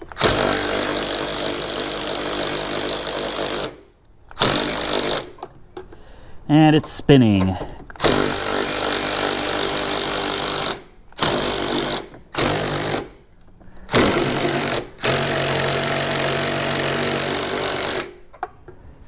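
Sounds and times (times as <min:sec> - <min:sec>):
impact wrench hammering: 0:08.0 - 0:13.2, 0:13.9 - 0:18.2.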